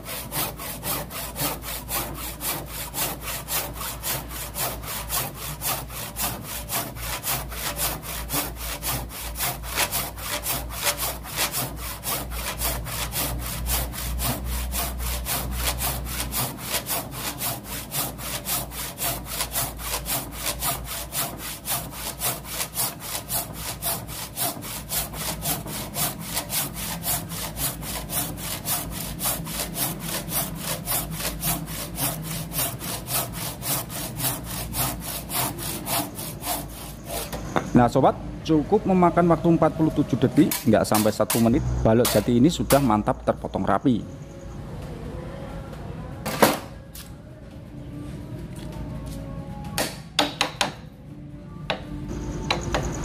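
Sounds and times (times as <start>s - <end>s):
hand saw cutting wood: 0.0s - 37.5s, 40.4s - 42.9s.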